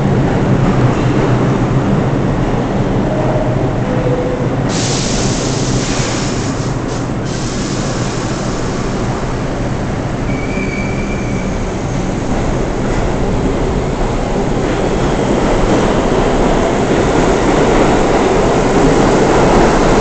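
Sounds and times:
train wheels rumbling on rail: 0.0s - 20.0s
loud hiss: 4.7s - 9.4s.

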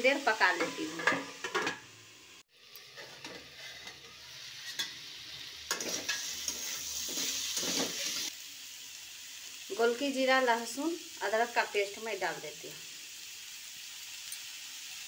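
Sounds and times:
vegetables sizzling in a pan: 0.0s - 15.0s
metal spatula scraping a pan: 0.5s - 1.8s, 2.8s - 8.3s.

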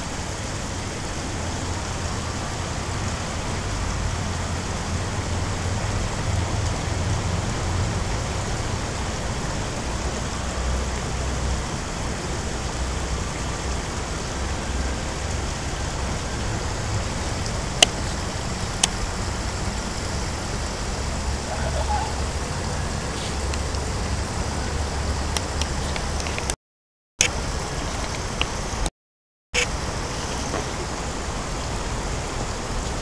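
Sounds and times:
even hiss: 0.0s - 26.6s, 29.6s - 33.0s.

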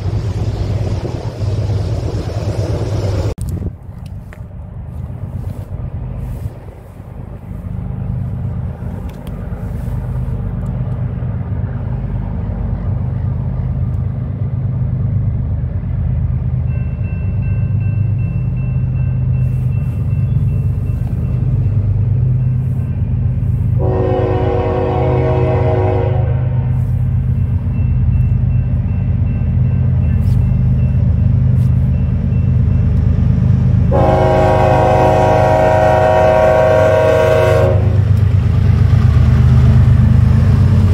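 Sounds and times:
diesel locomotive rumble: 0.0s - 40.9s
train air horn: 23.8s - 26.9s, 33.9s - 38.0s.

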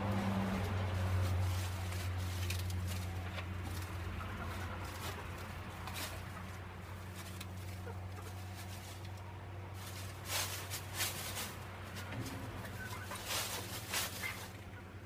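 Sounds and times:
chickens scratching and pecking: 0.0s - 15.0s
bedding rustle: 4.8s - 14.7s.

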